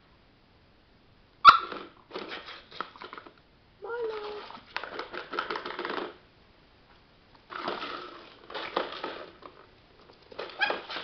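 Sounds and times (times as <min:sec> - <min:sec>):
dog yipping: 0:01.4 - 0:02.6, 0:10.5 - 0:11.0.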